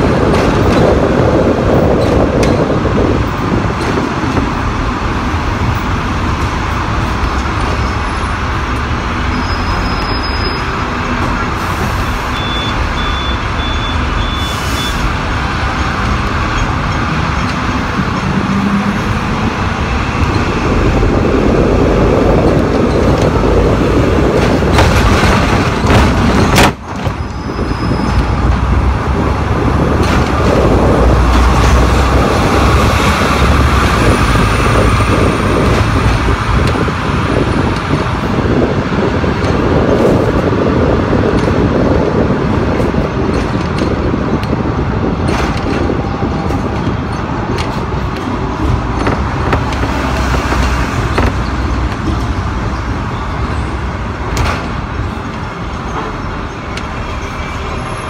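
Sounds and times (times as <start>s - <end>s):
tram wheels rumbling on rails: 0.0s - 58.0s
high beeps: 12.3s - 14.9s.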